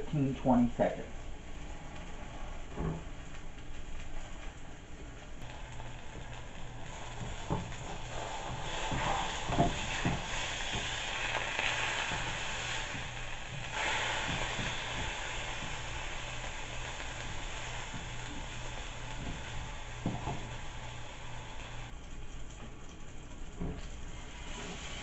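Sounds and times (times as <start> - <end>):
steak sizzling in a frying pan: 5.4 - 21.9, 23.8 - 25.0
spatula knocking on pan: 8.5 - 11.3, 14.2 - 16.0.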